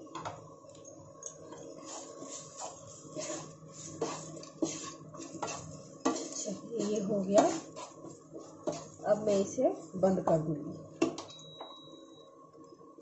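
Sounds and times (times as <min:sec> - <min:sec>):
wooden spatula scraping a pan: 0:01.6 - 0:10.0.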